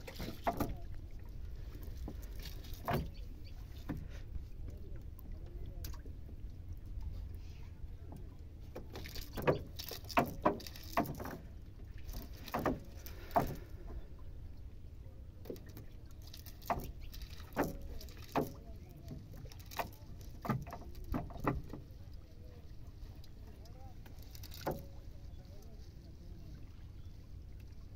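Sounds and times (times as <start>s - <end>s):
taps and rustles of net handling: 2.0s - 3.2s, 8.8s - 11.4s, 12.0s - 13.7s, 15.5s - 21.8s, 24.0s - 25.0s.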